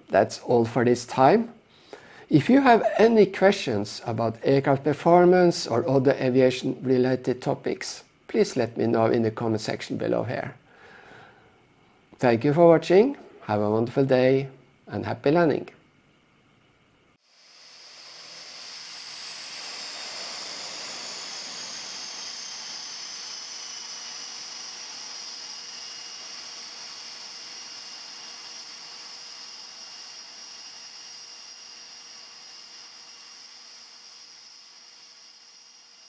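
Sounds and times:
aircraft turbine engine whine: 0:17.3 - 0:36.0.

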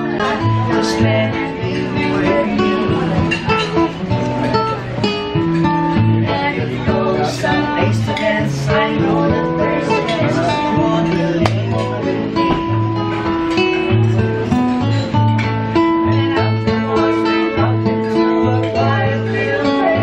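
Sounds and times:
woman and man singing: 0:00.0 - 0:04.0, 0:05.9 - 0:12.4, 0:16.3 - 0:20.0
acoustic guitar chords: 0:00.0 - 0:20.0.

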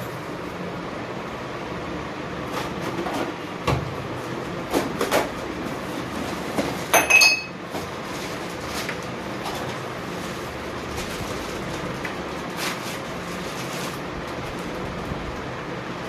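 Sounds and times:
steady background noise: 0:00.0 - 0:16.0
knocks and crinkles of packaging: 0:02.5 - 0:14.8.

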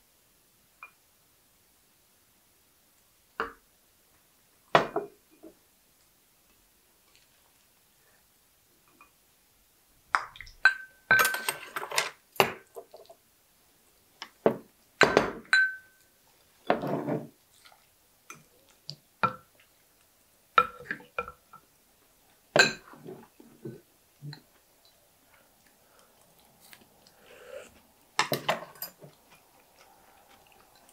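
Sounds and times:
utensils clinking on dishes: 0:10.6 - 0:12.6
utensil scrape: 0:27.2 - 0:27.8.

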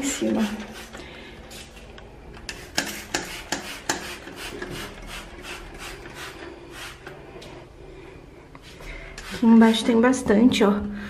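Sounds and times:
spray bottle click and hiss: 0:02.5 - 0:07.2.

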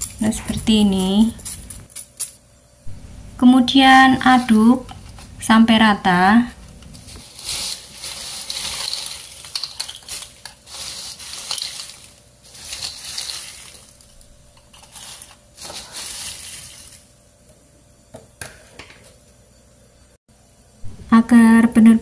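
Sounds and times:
chips rustling in metal bowl: 0:06.9 - 0:17.1.

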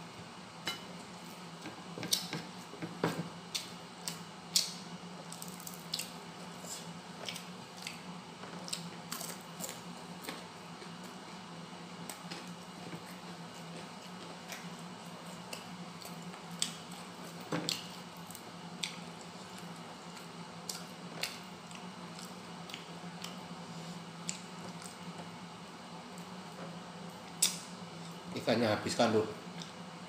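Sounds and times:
steady low hum: 0:00.0 - 0:30.0
man chewing food: 0:00.9 - 0:11.2, 0:12.0 - 0:25.4, 0:29.5 - 0:29.8.

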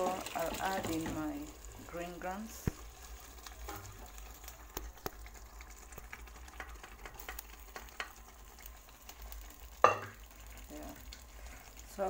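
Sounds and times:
wooden spoon stirring: 0:00.0 - 0:09.0
food sizzling in a pan: 0:00.0 - 0:12.0.

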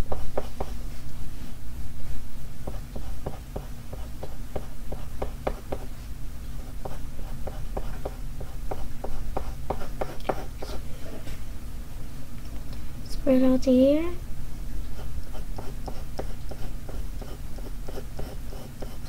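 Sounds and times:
pencil scratching on paper: 0:00.0 - 0:00.8, 0:02.6 - 0:05.9, 0:06.6 - 0:10.8, 0:15.0 - 0:19.0.

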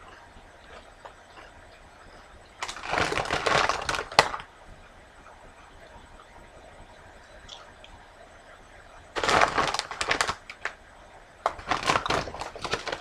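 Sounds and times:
chewing crunchy chips: 0:00.0 - 0:04.5, 0:11.5 - 0:13.0.

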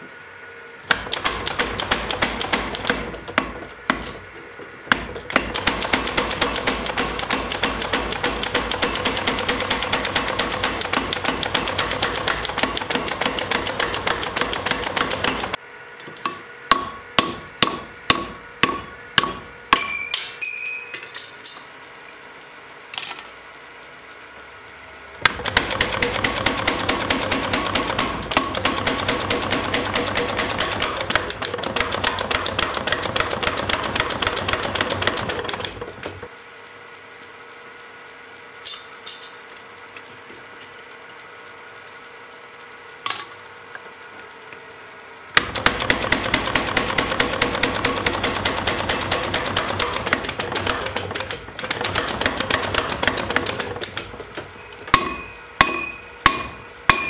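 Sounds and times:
power hammer pounding steel: 0:00.9 - 0:04.2, 0:04.9 - 0:15.6, 0:16.7 - 0:20.2, 0:25.2 - 0:35.8, 0:45.4 - 0:57.0
ringing metal strikes: 0:16.7 - 0:21.2, 0:55.0 - 0:57.0.

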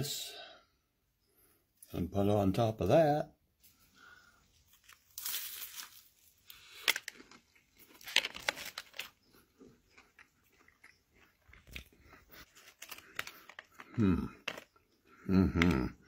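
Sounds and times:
person chewing a sandwich: 0:04.5 - 0:15.8.

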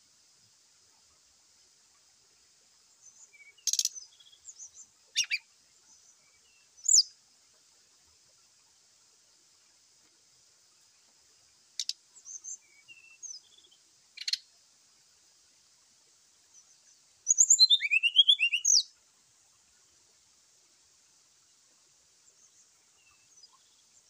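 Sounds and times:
bird song with clicks and whistles: 0:03.2 - 0:05.4, 0:06.8 - 0:07.1, 0:11.8 - 0:13.4, 0:14.2 - 0:14.4, 0:17.3 - 0:18.9.

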